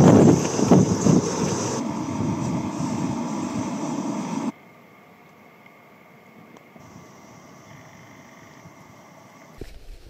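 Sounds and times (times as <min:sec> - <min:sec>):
wind buffeting microphone: 0:00.0 - 0:04.5.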